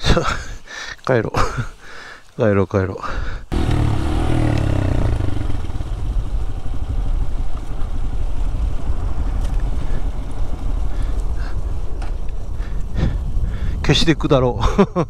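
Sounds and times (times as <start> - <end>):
motorcycle engine running: 3.5 - 10.8
rushing wind noise: 3.5 - 15.0.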